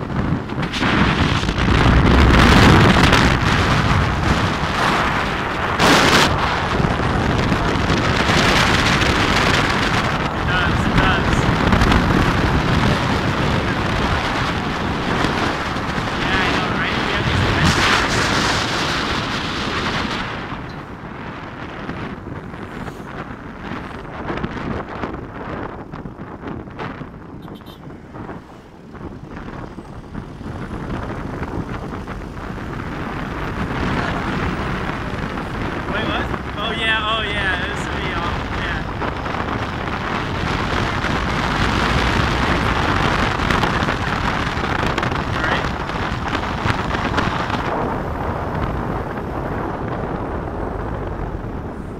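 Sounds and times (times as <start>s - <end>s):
road noise: 0.0s - 51.9s
wind buffeting microphone: 0.0s - 51.9s.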